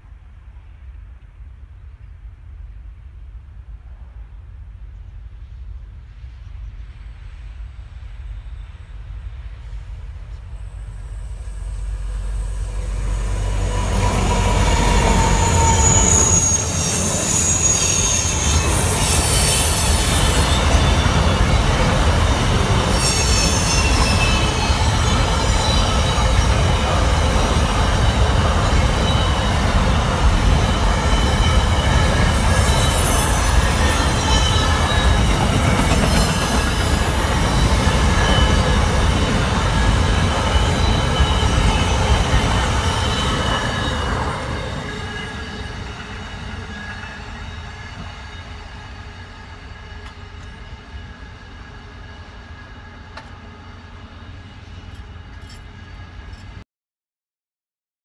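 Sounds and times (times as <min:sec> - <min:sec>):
diesel locomotive passing: 0:00.0 - 0:56.6
train wheels rumbling: 0:00.0 - 0:56.6
high-pitched wheel squeal: 0:10.9 - 0:48.6.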